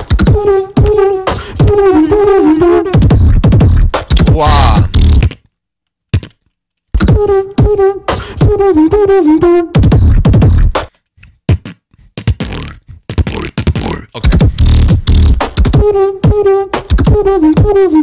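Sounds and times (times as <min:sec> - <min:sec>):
person beatboxing: 0:00.0 - 0:05.3, 0:07.0 - 0:09.1, 0:11.5 - 0:18.0.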